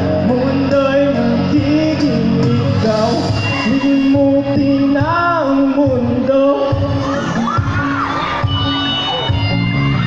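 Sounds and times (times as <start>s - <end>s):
person singing: 0.0s - 7.8s
pop song backing music: 0.0s - 10.0s
crowd cheering: 6.7s - 10.0s.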